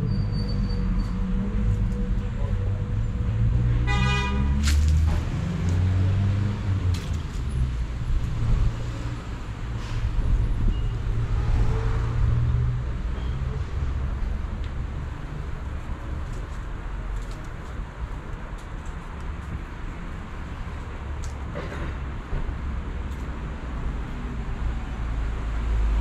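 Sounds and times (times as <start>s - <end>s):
street traffic rumble: 0.0s - 26.0s
car horn honking: 3.8s - 4.6s.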